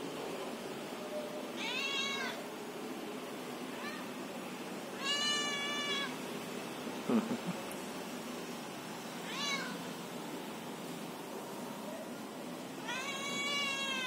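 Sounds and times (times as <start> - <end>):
cat meowing: 1.6 - 2.4, 3.7 - 4.1, 5.0 - 6.2, 9.2 - 9.9, 12.8 - 14.0.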